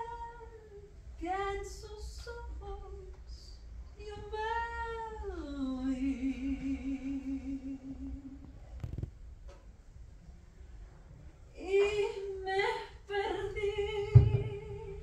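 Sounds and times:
woman singing unaccompanied: 0.0s - 8.5s, 11.6s - 15.0s.

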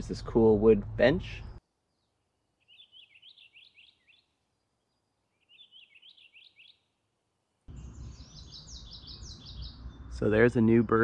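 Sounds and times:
songbird high repeated phrases: 2.6s - 4.3s, 5.4s - 6.9s.

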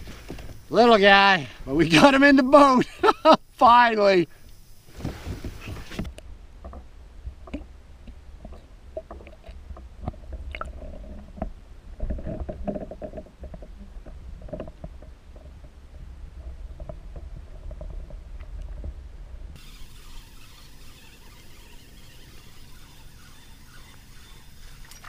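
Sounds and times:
muffled underwater rumble: 5.1s - 19.6s
underwater clicks and knocks: 6.0s - 15.8s.

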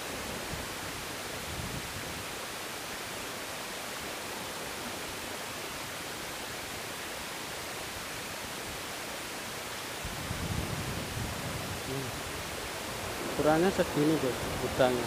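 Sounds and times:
sea surf breaking: 10.6s - 15.0s.

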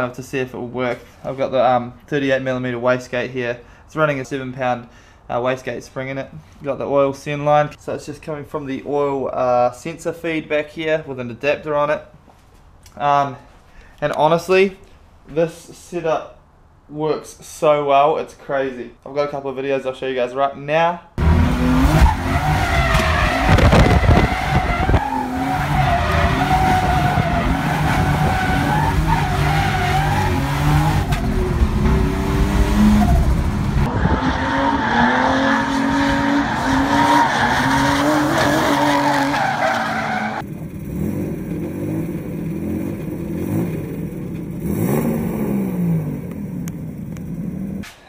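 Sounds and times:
car engine at high revs: 21.2s - 47.8s
tyre squeal: 21.9s - 31.5s, 32.8s - 40.4s.

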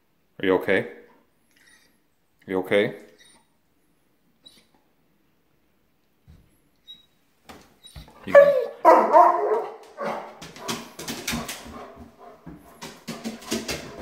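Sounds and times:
dog claws tapping on wooden floor: 9.5s - 14.0s.

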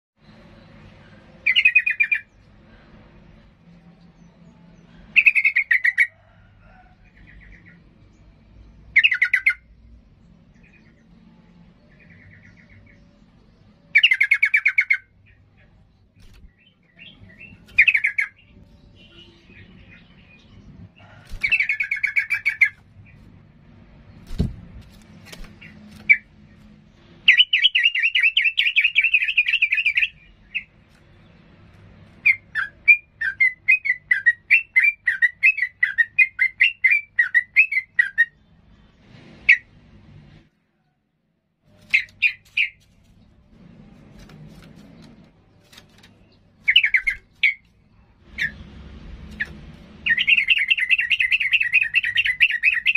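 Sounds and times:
bird singing: 0.2s - 2.6s, 3.4s - 23.4s, 24.0s - 38.9s, 45.4s - 48.6s, 49.3s - 52.9s
rapid bird trill: 1.4s - 2.4s, 5.1s - 6.3s, 8.9s - 9.9s, 13.8s - 15.4s, 16.2s - 23.3s, 27.2s - 30.8s, 32.2s - 38.4s, 41.7s - 42.8s, 46.2s - 48.7s, 49.3s - 52.9s.

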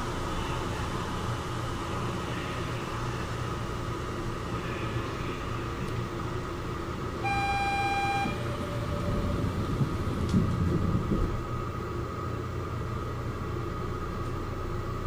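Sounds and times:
train rumbling: 0.0s - 13.8s
steady equipment hum: 0.0s - 15.0s
electronic beep: 7.2s - 9.0s.

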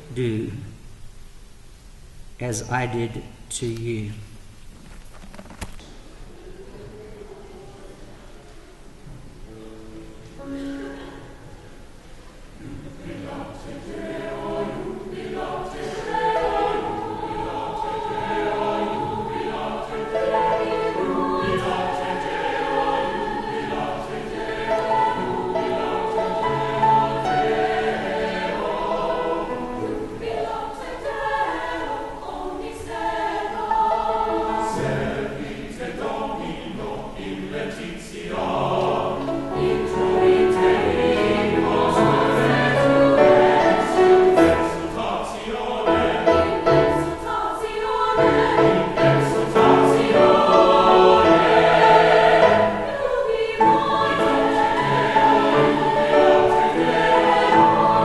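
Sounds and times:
mixed choir singing: 10.0s - 58.0s.

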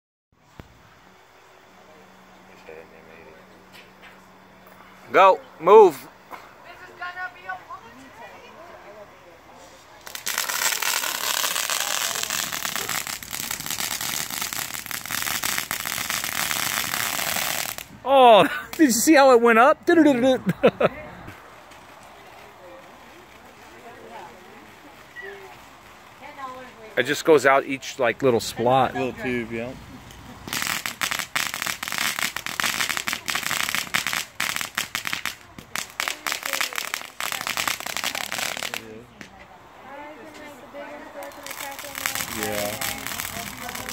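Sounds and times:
firework hissing and crackling: 9.2s - 43.9s.

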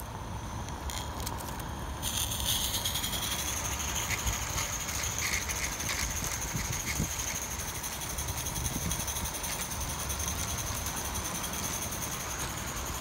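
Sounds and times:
model steam locomotive chuffing: 2.0s - 13.0s
wind on microphone: 5.9s - 7.4s, 8.3s - 9.5s.

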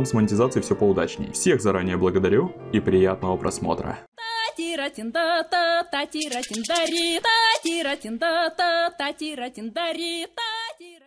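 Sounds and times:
high wavering singing voice: 4.2s - 8.9s
fast high ticking: 6.0s - 8.1s.

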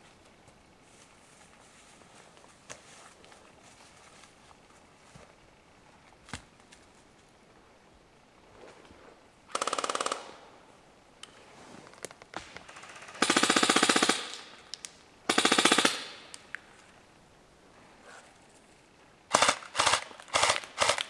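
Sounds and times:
airsoft rifle full-auto bursts: 9.5s - 10.5s, 12.7s - 14.6s, 15.3s - 16.4s, 19.3s - 21.0s.

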